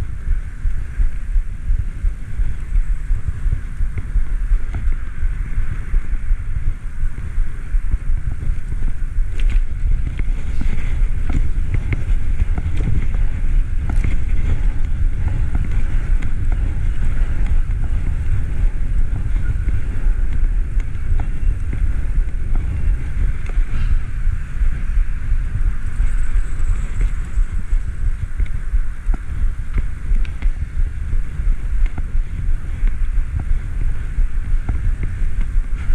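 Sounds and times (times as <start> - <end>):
wind buffeting microphone: 0.0 - 35.9.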